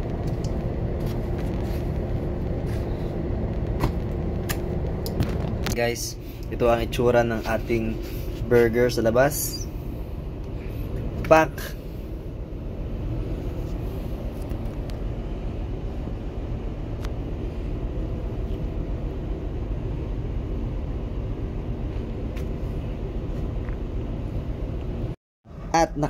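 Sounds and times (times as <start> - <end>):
faint constant hum: 0.0 - 26.0
ship machinery rumble: 0.0 - 26.0.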